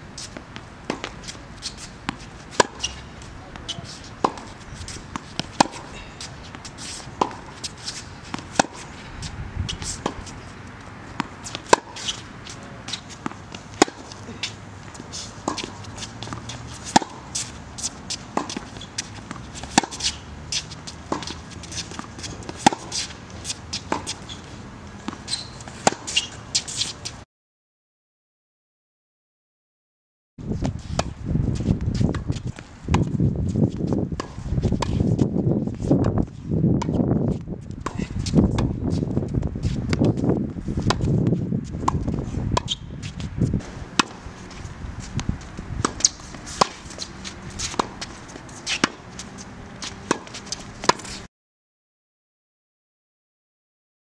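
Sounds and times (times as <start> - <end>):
tennis racket hitting ball: 0.2 - 10.5, 11.1 - 24.4, 25.0 - 27.0, 40.8 - 51.2
shoe squeaks on court: 1.0 - 10.7, 11.4 - 27.2, 42.6 - 51.3.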